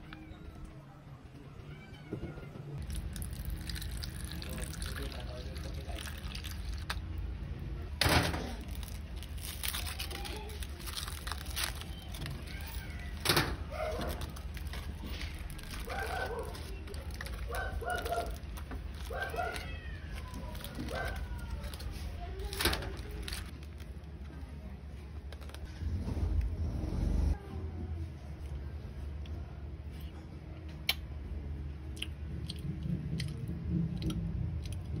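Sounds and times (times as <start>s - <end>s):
aluminium foil crinkling: 2.8s - 7.0s, 8.2s - 24.2s
eating clicks and crackles: 2.8s - 7.1s, 13.9s - 24.1s, 31.8s - 35.0s.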